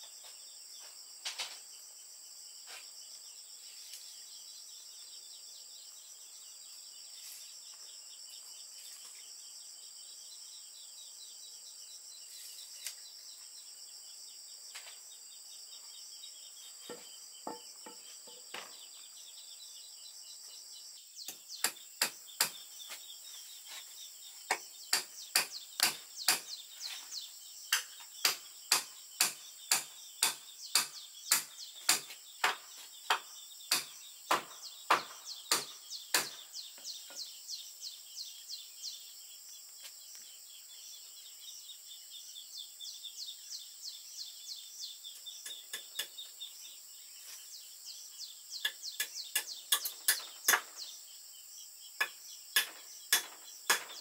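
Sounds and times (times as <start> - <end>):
insects humming: 0.0 - 54.0
bird calls: 3.7 - 54.0
hammer knocking on wood: 16.8 - 18.8, 28.2 - 36.4.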